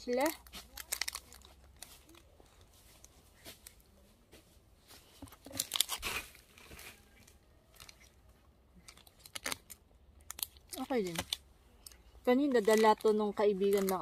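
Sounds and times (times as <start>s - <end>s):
plastic wrapper crinkling: 0.0s - 3.9s, 5.1s - 14.0s
crunchy chewing: 5.4s - 14.0s.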